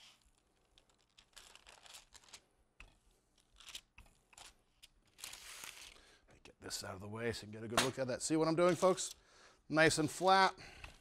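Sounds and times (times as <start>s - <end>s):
paper crinkling under rolling pin: 0.0s - 2.5s.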